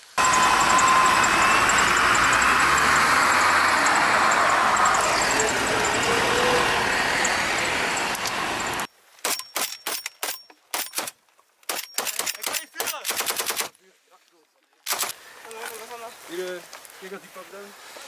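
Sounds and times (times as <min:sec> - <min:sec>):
vehicle engine and tyre noise: 0:00.0 - 0:11.9, 0:14.7 - 0:18.0
rapid gunfire bursts: 0:11.7 - 0:13.8, 0:14.9 - 0:15.2.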